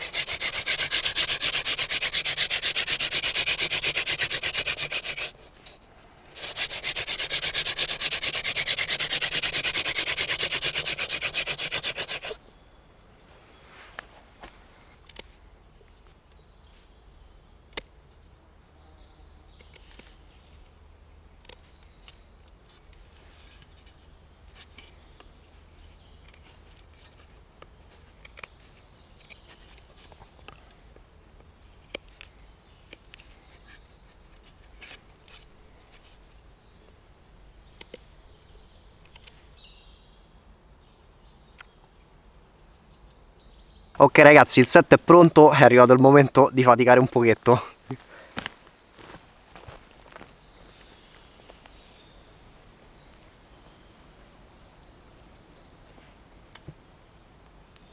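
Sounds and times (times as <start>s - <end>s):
knife carving wood: 0.0s - 12.4s, 32.9s - 36.1s.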